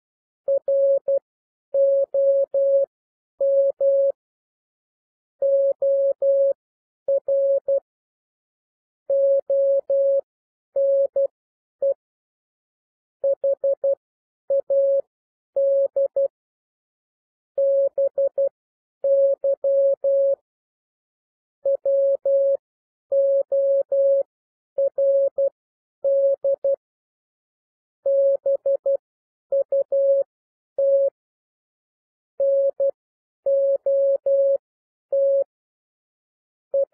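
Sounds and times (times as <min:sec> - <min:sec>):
morse code tone: 0:35.2 - 0:35.5.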